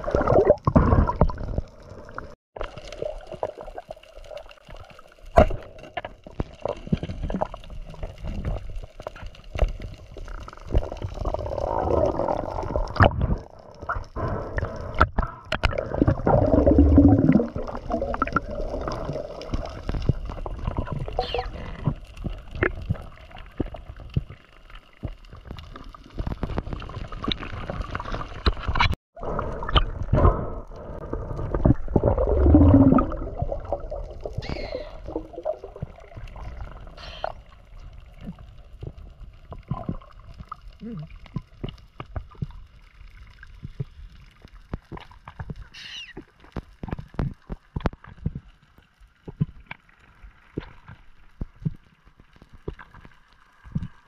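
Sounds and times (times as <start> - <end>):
bubbling surges: 0.0 - 4.8, 9.8 - 24.4, 25.8 - 41.6
water gurgling and sloshing: 0.0 - 54.0.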